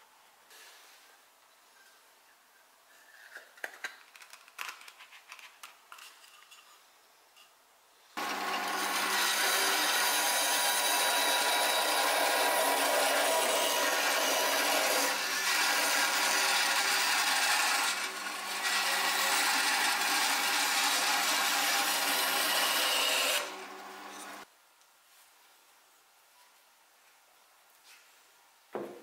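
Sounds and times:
power tool motor hum: 0:08.2 - 0:24.4
rasping wood cutting: 0:08.2 - 0:24.4.

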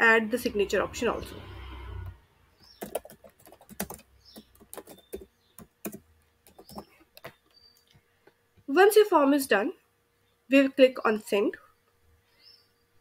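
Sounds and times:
keyboard typing: 0:02.8 - 0:07.4.

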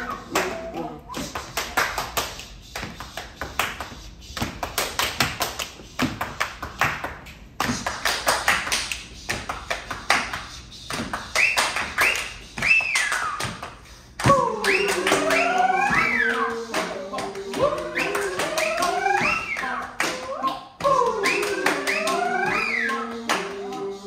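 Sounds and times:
voices with gliding pitches: 0:00.0 - 0:01.5, 0:14.2 - 0:24.0
high sliding vocal sounds: 0:00.0 - 0:04.4, 0:14.2 - 0:24.0
group clapping hands: 0:00.0 - 0:24.0.

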